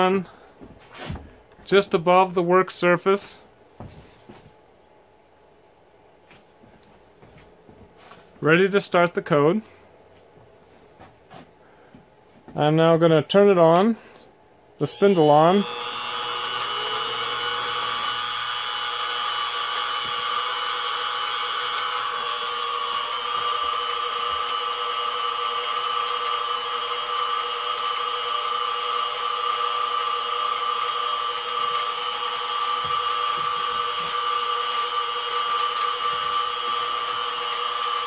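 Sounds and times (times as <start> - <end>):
mill spindle motor whining: 14.8 - 38.0.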